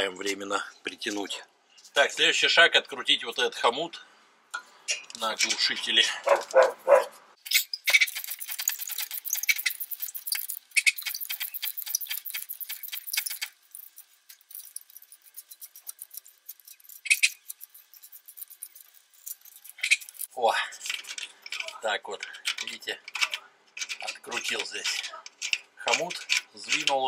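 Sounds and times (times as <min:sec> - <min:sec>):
ratchet wrench clicking: 0:07.5 - 0:20.3.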